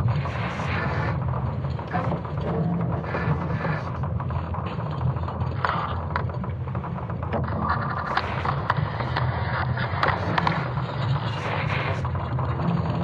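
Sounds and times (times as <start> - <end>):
creaking and crackling clicks: 0.0 - 13.0
deep rumble: 0.0 - 13.0.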